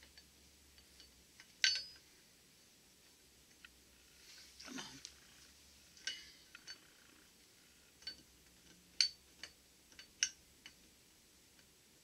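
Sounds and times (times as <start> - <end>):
metal parts clicking: 1.0 - 2.0.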